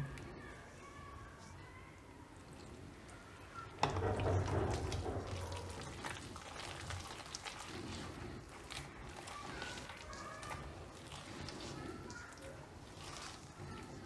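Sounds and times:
hand squelching batter: 1.2s - 14.0s
knocks against metal bowl: 3.8s - 5.4s.

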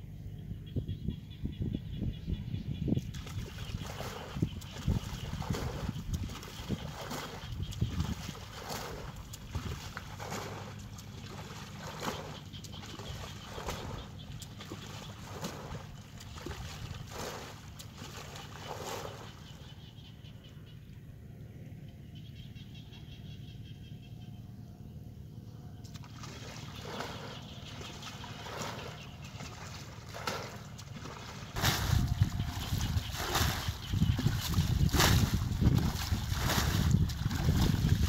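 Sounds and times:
low steady rumble: 0.0s - 38.0s
bucket splashing water: 3.1s - 19.4s, 26.0s - 38.0s
water trickling: 3.2s - 19.4s, 26.1s - 38.0s.

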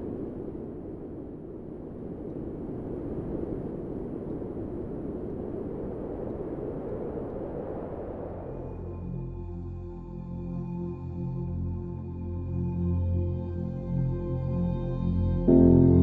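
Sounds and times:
low rushing noise: 0.0s - 9.4s.

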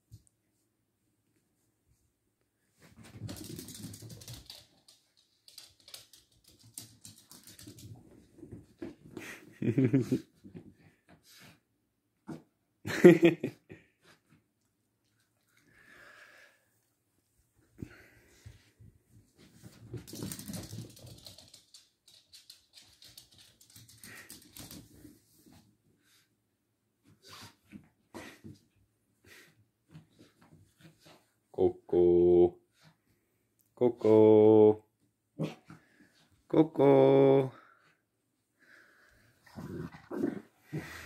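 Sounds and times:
dog claws clicking on floor: 3.1s - 8.0s, 19.8s - 25.1s
dog claws clicking on wooden floor: 3.3s - 7.9s.

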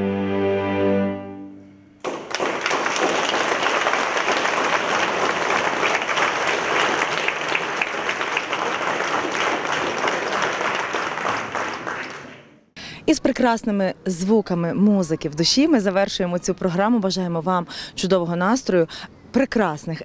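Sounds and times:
string quartet chord: 0.0s - 2.0s
audience applause: 2.0s - 12.6s.

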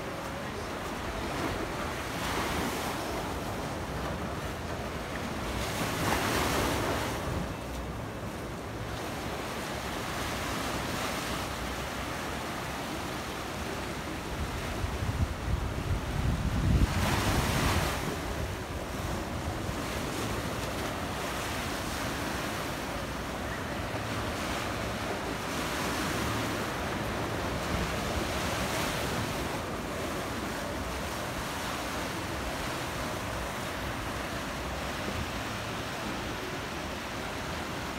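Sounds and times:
surf washing over rocks: 0.0s - 37.9s
wind buffeting microphone: 14.2s - 21.0s.

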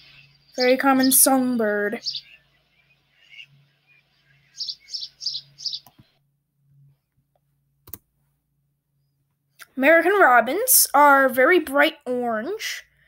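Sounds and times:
sparrow chirping: 0.0s - 6.2s.

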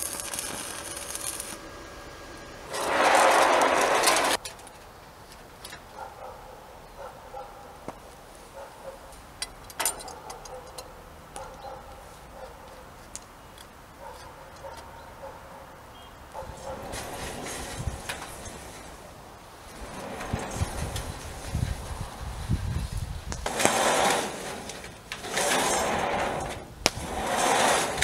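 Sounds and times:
crackling noise burst: 0.0s - 4.4s.

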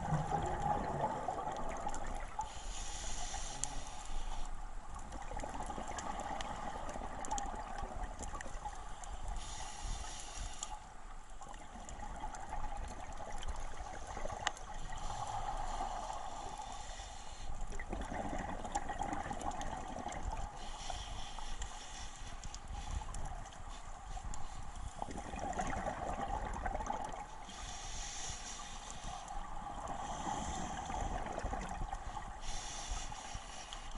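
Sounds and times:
bubbles gurgling underwater: 0.0s - 2.4s, 17.8s - 20.4s, 25.0s - 27.2s.

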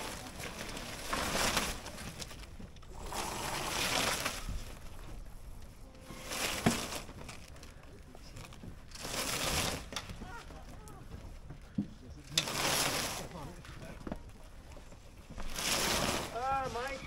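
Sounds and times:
rope running through blocks: 0.0s - 5.2s, 6.2s - 7.5s, 8.9s - 10.5s, 12.3s - 13.6s, 15.4s - 17.0s
sail cloth rustling: 0.0s - 17.0s.

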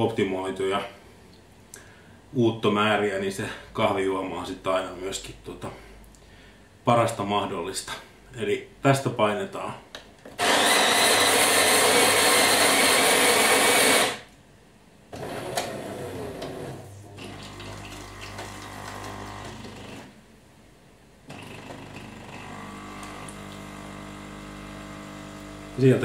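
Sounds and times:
coffee grinder grinding beans: 10.4s - 14.2s, 15.2s - 20.1s, 21.3s - 26.0s
coffee machine humming: 10.4s - 14.2s, 15.2s - 20.1s, 21.3s - 26.0s
coffee machine pump running: 10.4s - 14.2s, 15.2s - 20.1s, 21.3s - 26.0s.

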